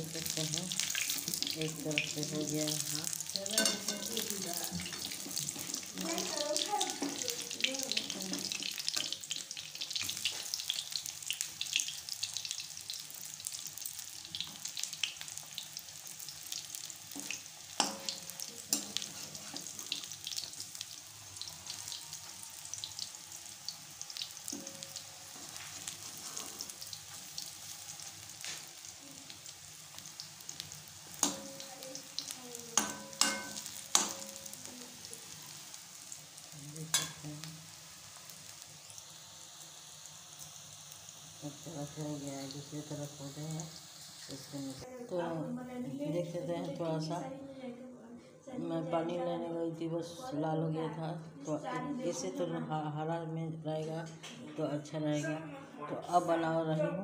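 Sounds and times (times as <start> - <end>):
fritters sizzling in hot oil: 0.0 - 47.3
metal spatula clicking on pan: 31.2 - 31.5, 32.8 - 34.4.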